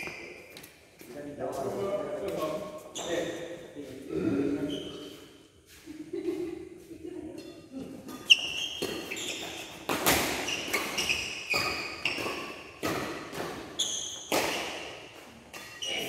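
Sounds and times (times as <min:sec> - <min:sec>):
shoe squeaks on court: 0:00.0 - 0:00.6, 0:02.8 - 0:03.5, 0:04.6 - 0:05.4, 0:08.1 - 0:16.0
rackets striking shuttlecock: 0:07.4 - 0:16.0
footfalls on court floor: 0:07.8 - 0:16.0.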